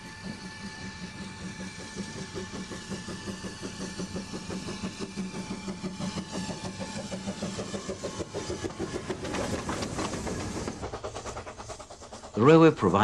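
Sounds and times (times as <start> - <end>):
steam locomotive chuffing: 0.0 - 13.0.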